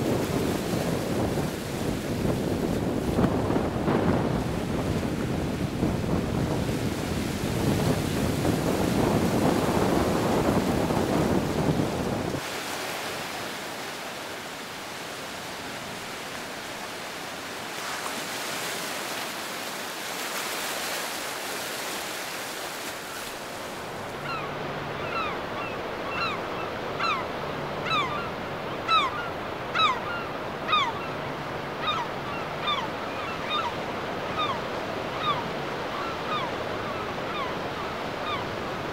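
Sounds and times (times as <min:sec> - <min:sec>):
wind buffeting microphone: 0:00.0 - 0:12.5
surf breaking on beach: 0:00.0 - 0:24.1.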